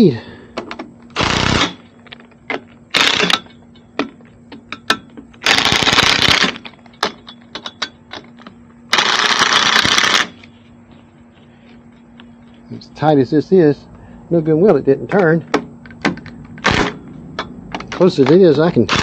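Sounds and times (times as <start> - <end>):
faint steady hum: 0.0 - 19.0
rapid mechanical rattling: 1.2 - 1.9, 2.9 - 3.6, 5.4 - 10.4, 17.8 - 19.0.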